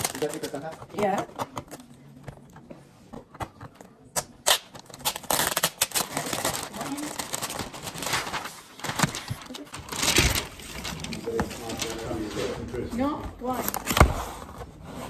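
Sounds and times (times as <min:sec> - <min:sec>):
wrapping paper tearing: 0:00.0 - 0:01.0, 0:04.2 - 0:12.7.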